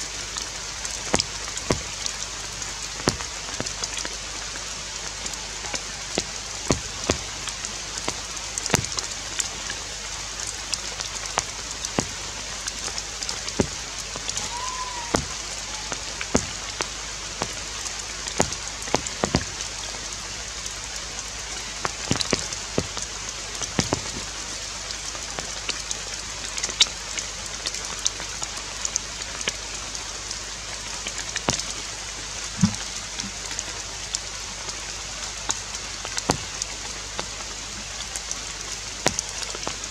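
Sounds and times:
rain on leaves: 0.0 - 39.9
sharp drips: 0.0 - 39.9
short high call: 14.3 - 16.1.

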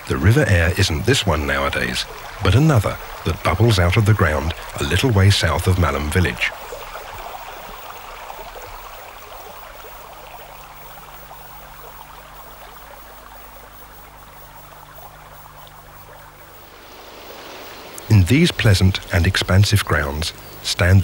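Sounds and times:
faint low hum: 0.0 - 21.0
stream water trickling: 0.0 - 21.0.

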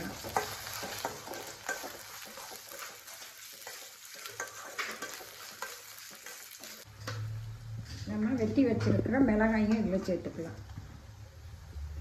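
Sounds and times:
metal spoon scraping a pan: 0.0 - 7.2
onions sizzling in oil: 0.0 - 7.2.

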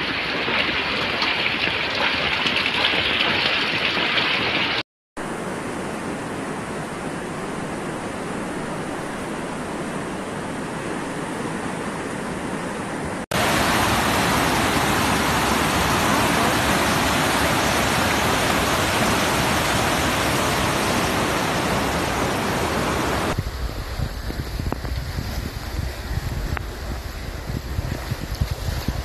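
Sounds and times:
floodwater rushing: 13.3 - 29.0.

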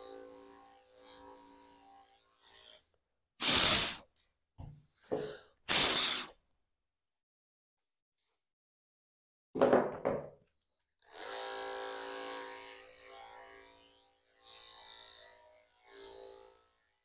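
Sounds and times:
puffs of breath: 3.4 - 4.0, 5.1 - 6.4.

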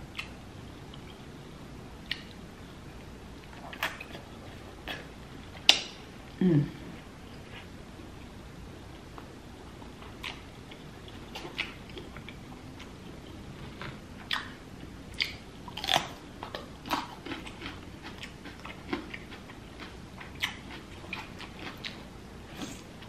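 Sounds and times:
wet chewing and lip smacks: 2.0 - 2.4.

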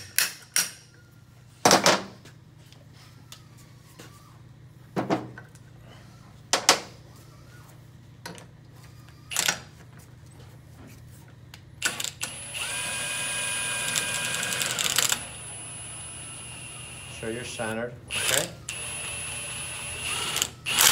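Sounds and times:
cordless power tool whining: 11.8 - 17.2, 18.1 - 20.9.

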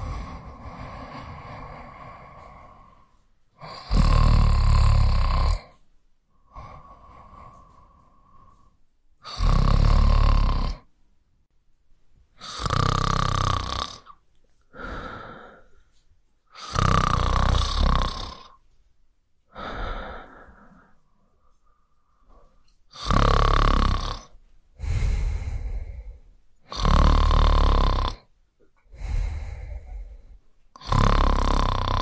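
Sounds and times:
soft breaths out: 0.0 - 3.8, 5.6 - 8.8, 14.5 - 16.1, 19.5 - 22.8, 24.8 - 26.4, 28.8 - 30.6
person snoring: 0.0 - 5.8, 6.4 - 10.9, 12.4 - 15.8, 16.5 - 18.6, 19.5 - 21.0, 22.3 - 28.3, 28.9 - 32.0.

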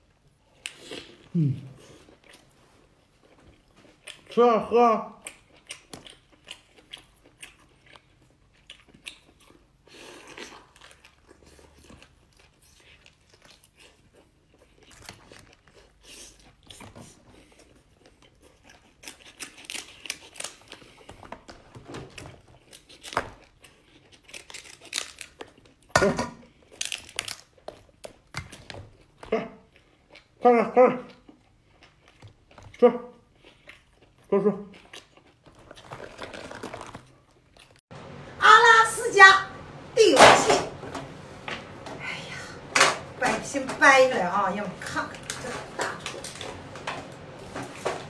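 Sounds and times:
chewing and smacking: 0.0 - 4.4, 5.2 - 30.4, 31.0 - 37.8
crab shell crunching: 22.5 - 29.2, 34.8 - 37.8.

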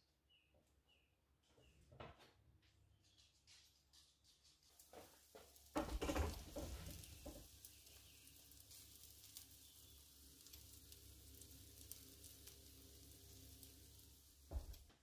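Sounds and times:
pancakes sizzling in butter: 4.7 - 15.0
thump and rustle: 4.9 - 7.4, 14.5 - 15.0.

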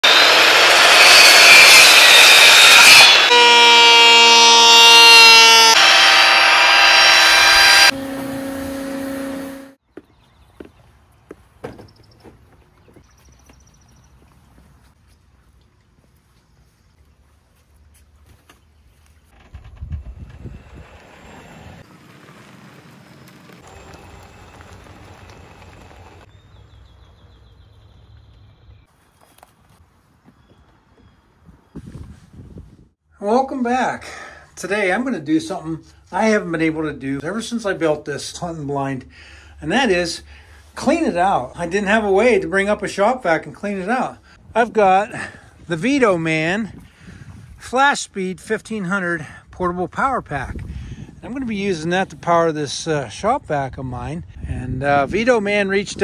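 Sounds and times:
circular saw cutting wood: 0.0 - 9.8, 19.5 - 26.3
power tool motors whining: 0.0 - 9.8, 19.4 - 26.3
bird chirping: 9.8 - 14.4, 26.2 - 29.5
golf cart driving: 19.4 - 27.6
tyres rustling on leaves: 20.8 - 26.3.

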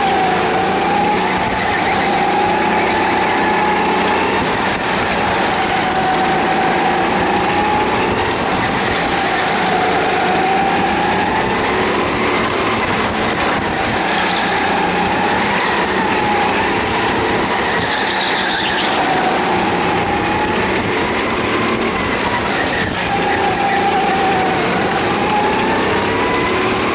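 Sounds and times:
go-kart engine running: 0.0 - 26.9.

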